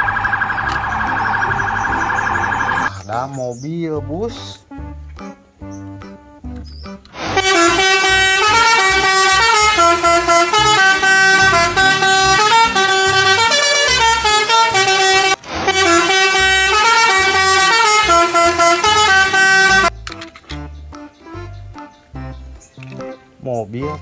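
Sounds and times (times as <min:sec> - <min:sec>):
musical bus horn tune: 0:07.1 - 0:20.3.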